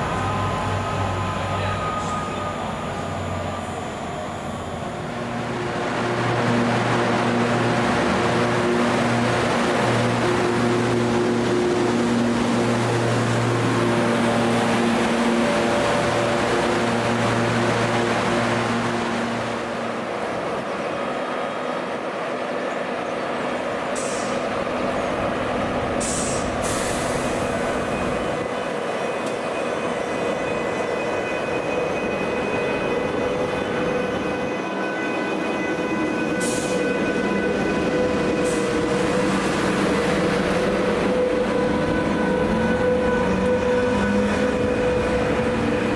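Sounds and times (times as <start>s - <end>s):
train whine: 0.0s - 45.9s
short hisses of air: 26.0s - 27.4s.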